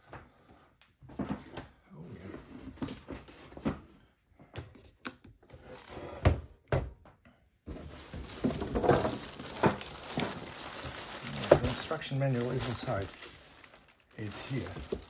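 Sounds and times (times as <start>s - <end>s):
plastic bag crinkling: 5.7s - 6.0s, 7.8s - 15.0s
handling knocks and thumps: 7.7s - 13.4s, 14.2s - 15.0s
cardboard box rummaging: 7.7s - 15.0s.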